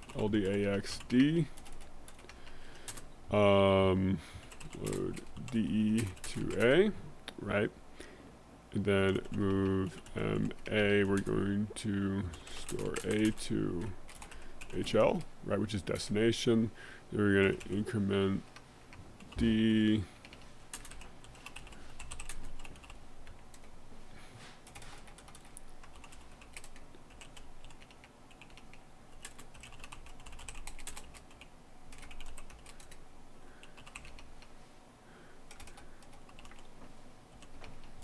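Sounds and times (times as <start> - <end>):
computer keyboard typing: 0.0 - 3.1, 4.4 - 6.8, 9.1 - 11.4, 12.3 - 15.0, 20.2 - 23.7, 24.6 - 33.0, 33.6 - 34.3, 35.5 - 36.7, 37.3 - 38.0.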